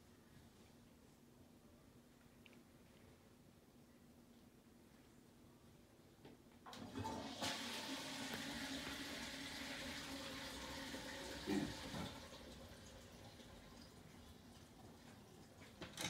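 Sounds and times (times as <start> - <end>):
toilet flushing: 6.7 - 16.0
toilet tank refilling: 6.7 - 16.0.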